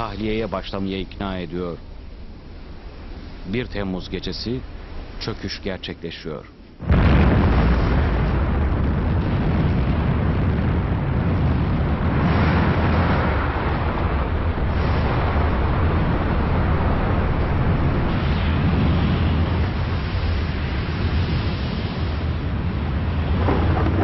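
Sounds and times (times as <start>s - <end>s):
volcanic hiss: 0.0s - 10.2s
volcano deep rumble: 0.0s - 24.0s.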